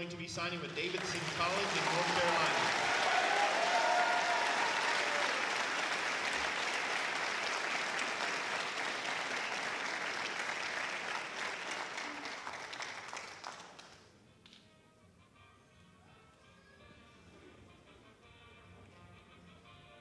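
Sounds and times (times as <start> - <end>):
audience applauding: 0.4 - 14.1.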